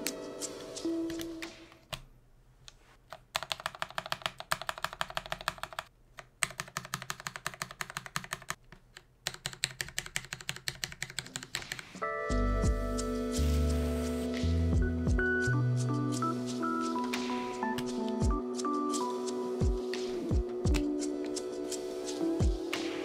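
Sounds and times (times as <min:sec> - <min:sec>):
keycaps clacking: 0:03.1 - 0:12.0.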